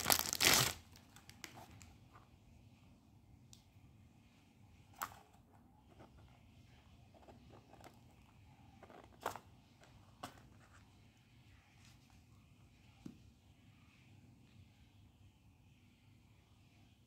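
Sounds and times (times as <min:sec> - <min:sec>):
handling small items or packaging: 0:00.0 - 0:02.3, 0:07.0 - 0:10.9.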